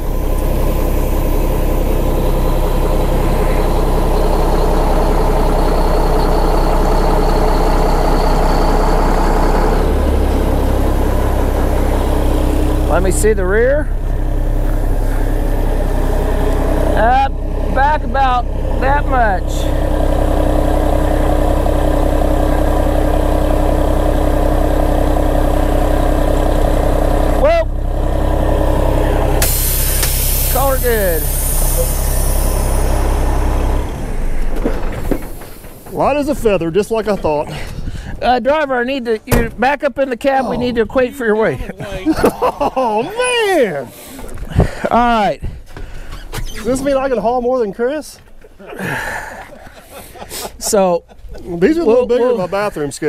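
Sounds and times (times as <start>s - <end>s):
diesel truck engine idling: 0.0s - 39.5s.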